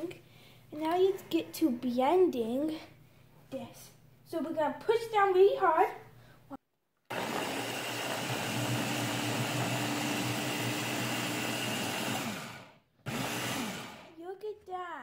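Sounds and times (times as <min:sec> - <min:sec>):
blender motor running: 0:07.1 - 0:14.1.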